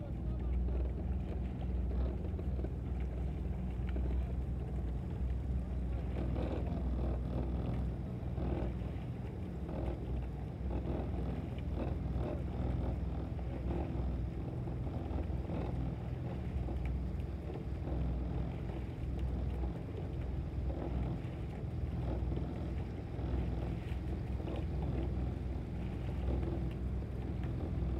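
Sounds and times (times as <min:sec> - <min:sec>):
motorboat engine running: 0:00.0 - 0:27.9.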